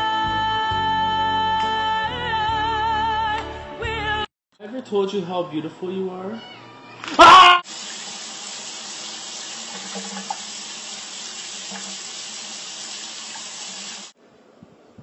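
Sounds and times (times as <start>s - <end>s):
water running: 7.2s - 14.2s.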